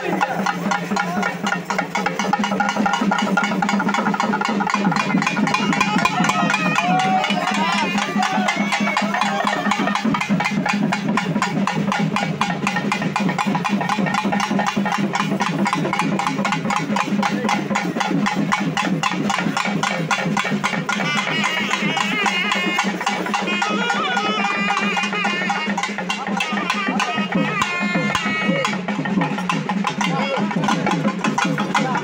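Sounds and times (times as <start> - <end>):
hourglass drums beaten fast: 0.0 - 32.0.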